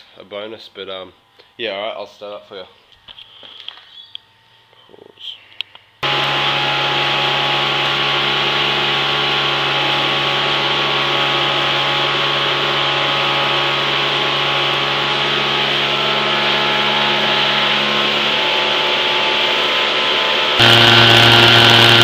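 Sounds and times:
jet engine roaring: 20.6s - 22.0s.

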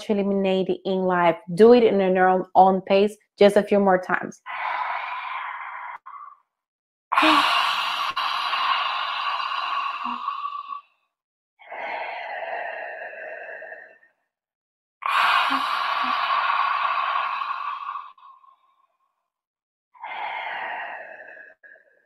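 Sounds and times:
woman breathing forcefully through mouth: 4.4s - 6.5s, 7.1s - 11.0s, 11.6s - 14.3s, 15.0s - 18.8s, 20.0s - 22.0s.

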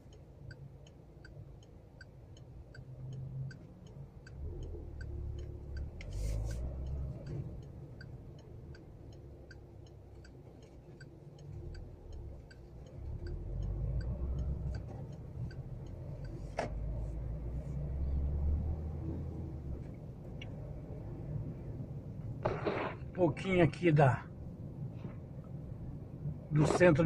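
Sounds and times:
turn signal ticking: 0.0s - 22.6s
engine and road rumble: 0.0s - 27.0s.

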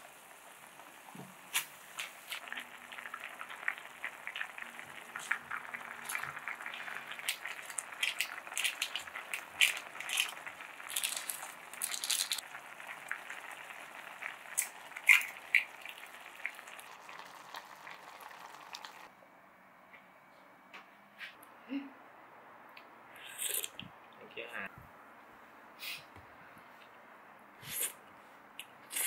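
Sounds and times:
soup boiling and bubbling: 0.0s - 19.1s.

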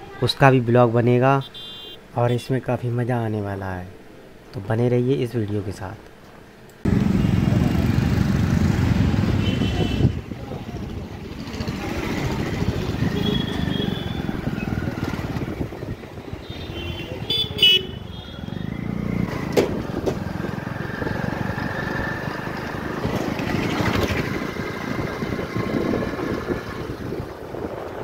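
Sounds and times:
street traffic: 0.0s - 2.6s, 3.9s - 28.0s
vehicle horn honking: 1.4s - 2.0s, 9.3s - 10.2s, 13.0s - 14.3s, 16.4s - 18.6s
motorcycles passing: 6.8s - 28.0s.

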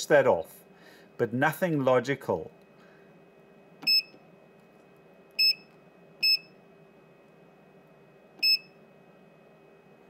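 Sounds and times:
short high electronic beeps: 5.4s - 5.6s, 6.2s - 6.5s.

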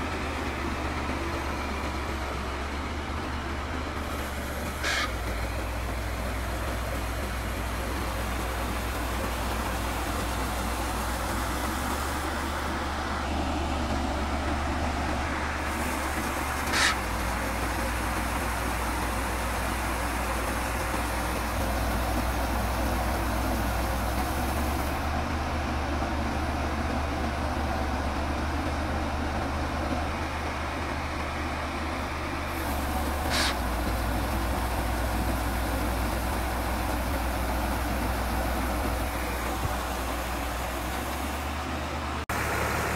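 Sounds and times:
harvester engine running: 0.0s - 42.9s
short high-pitched squeaks: 4.8s - 5.2s, 16.7s - 17.0s, 33.3s - 33.6s.

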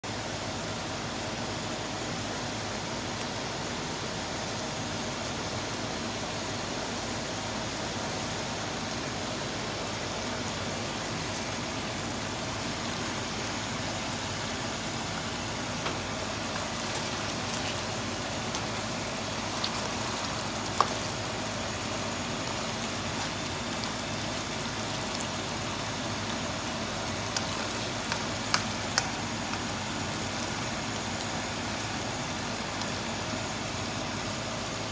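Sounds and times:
stew simmering hiss: 0.1s - 34.9s
small pops and clicks: 27.1s - 29.7s.

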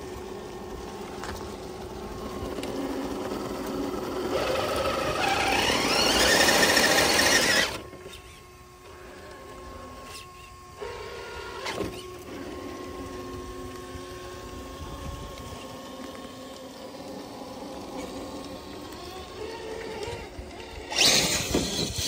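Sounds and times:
electric motor and gears whining: 0.0s - 22.0s.

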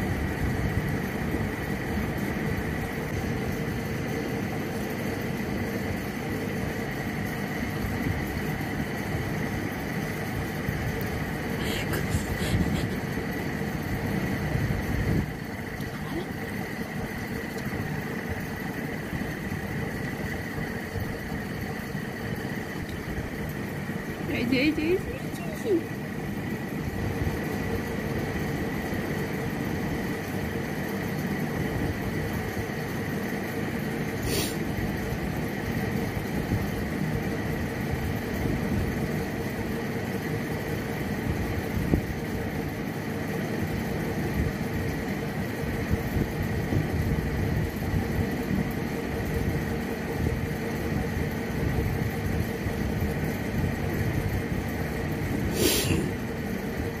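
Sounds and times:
mechanical hum with whine: 0.0s - 57.0s
short hiss: 34.2s - 34.6s, 55.5s - 56.1s.

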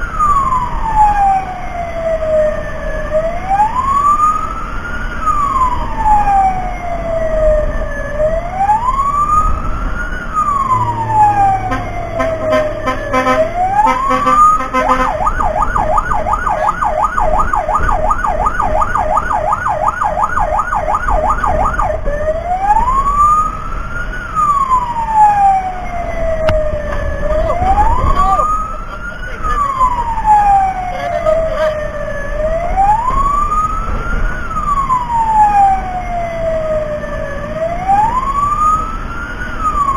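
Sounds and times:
fire engine siren wailing: 0.0s - 39.9s
low engine and road rumble: 0.0s - 39.9s.

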